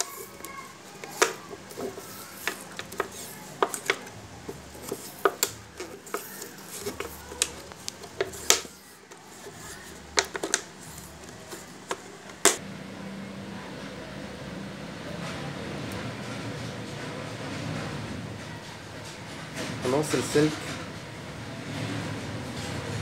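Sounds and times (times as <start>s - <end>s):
plastic bottle crackling: 0.0s - 12.6s.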